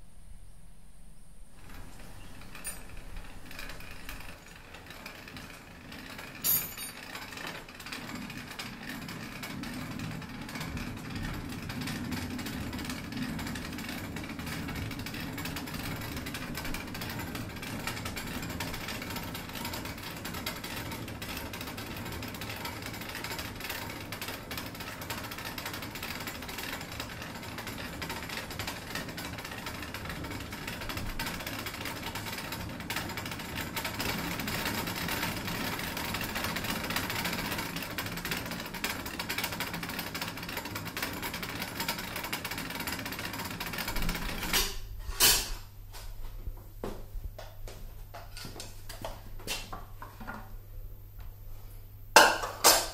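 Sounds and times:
mill mechanical clatter: 0:01.5 - 0:45.6.

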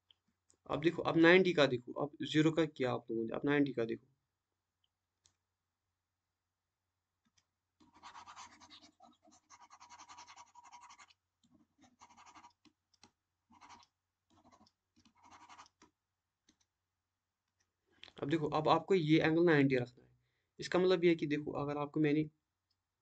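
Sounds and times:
pointing device scratchy rubbing: 0:07.8 - 0:12.7, 0:13.5 - 0:15.9.

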